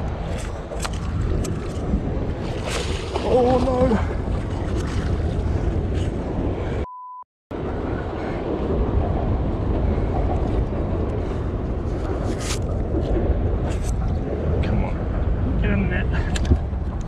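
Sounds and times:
wind rumbling on microphone: 0.0s - 6.8s, 7.5s - 17.0s
censor bleep: 6.8s - 7.2s.

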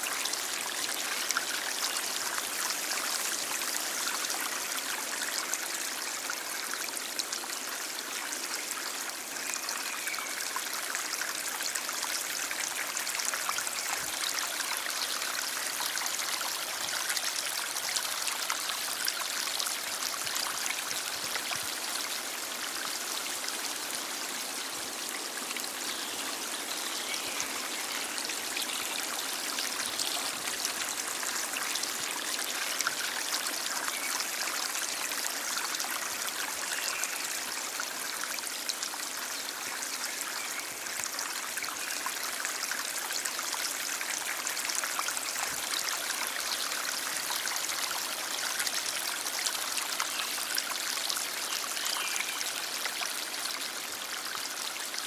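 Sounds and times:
stream flowing over rocks: 0.0s - 55.0s.

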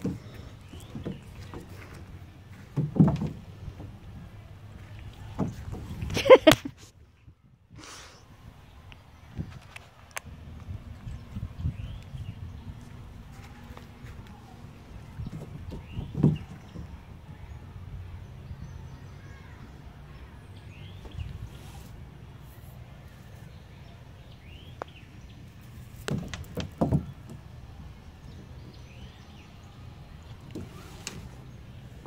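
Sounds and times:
thumps on hollow plastic slide: 0.0s - 4.0s.

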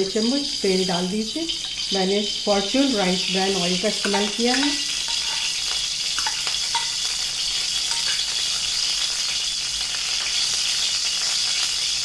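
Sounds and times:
oil sizzling in a pan: 0.0s - 12.0s
spoon clicking against pan: 4.0s - 7.1s, 7.8s - 8.5s.

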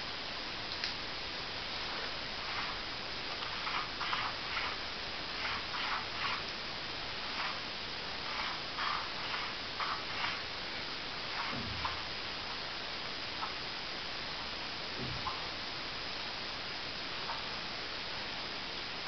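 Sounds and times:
steady hiss: 0.0s - 19.0s
pen scratching on card: 3.4s - 4.8s, 5.4s - 6.5s, 8.3s - 10.4s.

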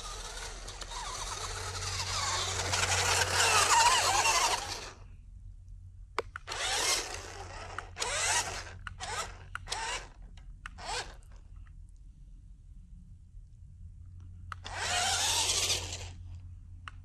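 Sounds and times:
toy car motor whirring: 0.0s - 5.0s, 6.3s - 11.4s, 14.6s - 16.4s
tyres churning dirt: 0.0s - 5.0s
click: 5.6s - 6.6s, 7.7s - 12.1s, 13.4s - 14.8s, 15.9s - 17.0s.

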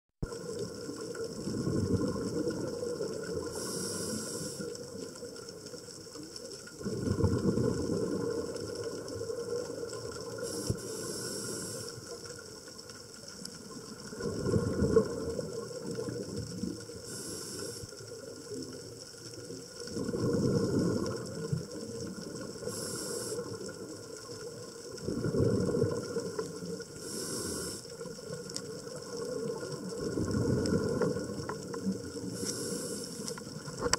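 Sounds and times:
exhaled air bubbling: 0.2s - 5.6s, 6.3s - 12.5s, 13.6s - 33.9s
regulator inhale hiss: 3.3s - 5.1s, 10.3s - 12.4s, 17.0s - 18.3s, 22.4s - 23.8s, 26.9s - 28.1s, 32.2s - 33.6s.

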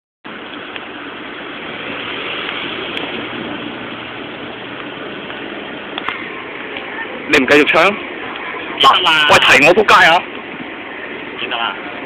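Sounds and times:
street traffic rushing: 0.2s - 12.0s.

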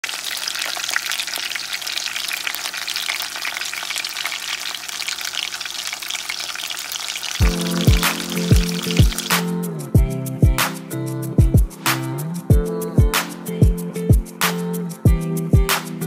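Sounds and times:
meat sizzling in a pot: 0.0s - 9.5s
music: 7.4s - 16.0s.

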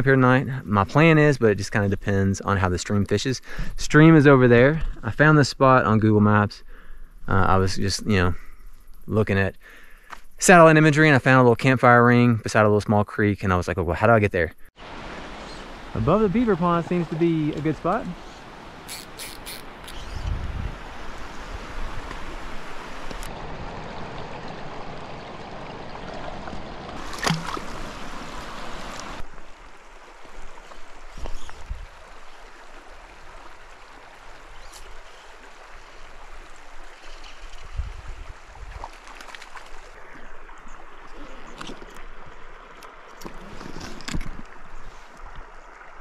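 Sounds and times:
creek water gurgling: 14.8s - 46.0s
hand splashing in water: 27.0s - 27.9s.

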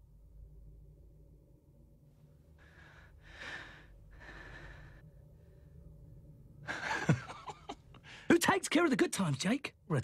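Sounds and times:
steady low hum: 0.0s - 10.0s
man breathing heavily: 2.6s - 5.8s.

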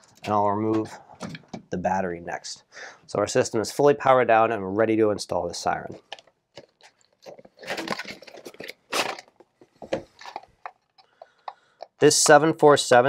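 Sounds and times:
rustles and scrapes: 6.0s - 10.8s.

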